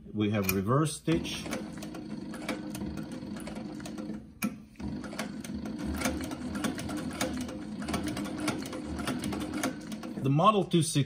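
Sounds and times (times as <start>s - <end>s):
sewing machine needle strokes: 1.1s - 4.2s, 4.8s - 10.3s
sewing machine hum: 1.1s - 10.6s.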